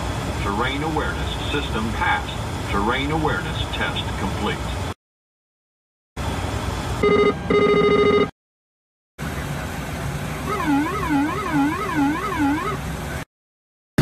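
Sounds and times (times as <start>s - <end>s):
cockpit background noise: 0.0s - 5.0s, 9.2s - 13.3s
steady warning tone: 7.0s - 8.3s, 10.4s - 12.8s
warbling warning tone: 10.4s - 12.8s.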